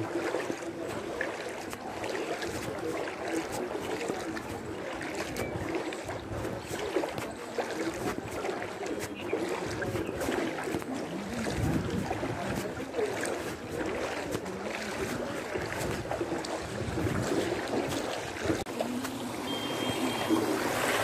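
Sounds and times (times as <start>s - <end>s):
water sloshing as someone wades: 0.0s - 21.0s
thin high tone: 19.4s - 20.6s.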